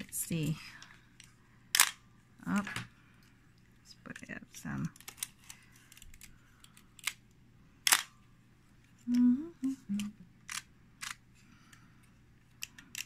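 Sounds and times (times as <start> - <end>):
camera mechanical clicks: 1.7 - 2.0, 7.8 - 8.1.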